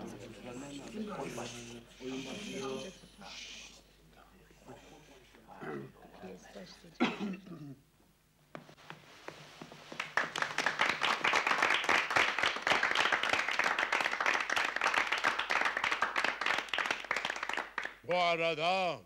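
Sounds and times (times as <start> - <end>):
audience applauding: 10.0 - 18.0.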